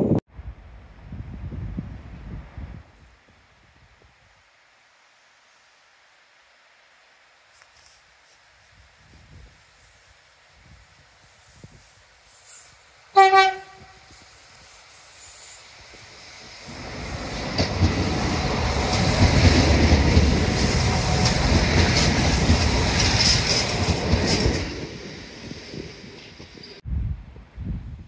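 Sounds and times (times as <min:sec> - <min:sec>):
train rumble and wheel clatter: 0:09.2 - 0:26.9
train horn note: 0:13.2 - 0:14.2.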